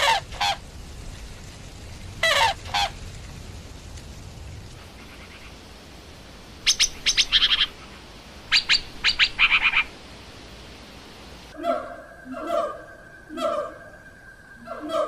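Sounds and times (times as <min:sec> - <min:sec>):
shrike calling harshly: 0:06.7 - 0:10.0.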